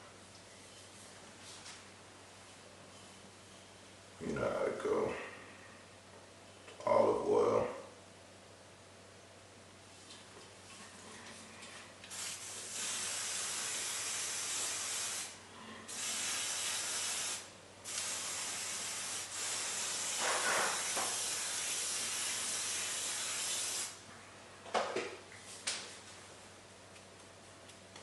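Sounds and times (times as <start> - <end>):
aerosol spray hissing: 12.1 - 24.0.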